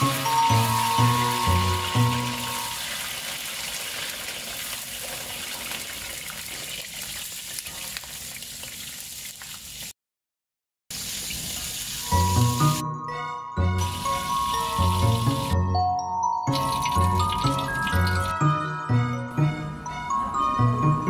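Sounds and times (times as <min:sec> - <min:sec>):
music: 0:00.0 - 0:02.8, 0:12.0 - 0:21.0
food deep-frying in hot oil: 0:00.0 - 0:10.0, 0:10.9 - 0:12.8, 0:13.8 - 0:15.6, 0:16.5 - 0:18.4.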